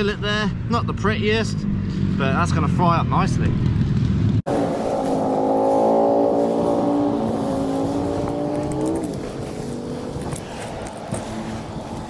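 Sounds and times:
passing vehicle engine droning: 0:00.6 - 0:12.0.

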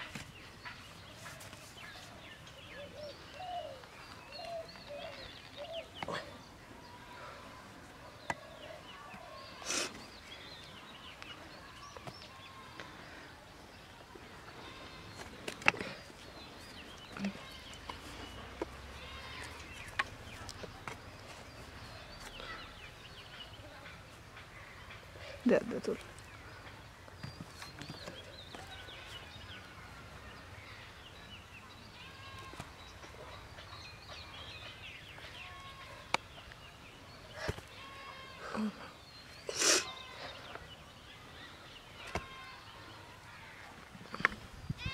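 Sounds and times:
small birds chirping: 0:00.0 - 0:44.9.

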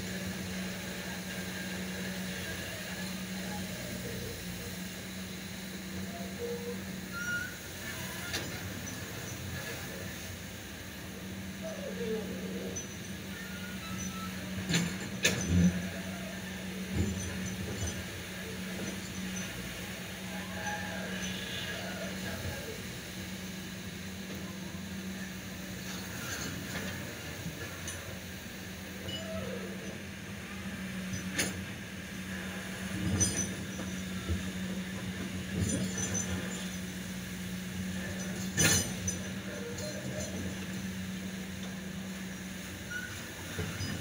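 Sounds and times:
excavator diesel engine humming: 0:00.0 - 0:44.0.

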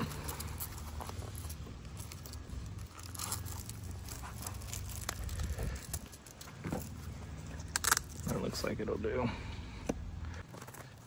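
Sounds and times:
velcro strap ripping: 0:00.0 - 0:06.5, 0:07.5 - 0:08.4.

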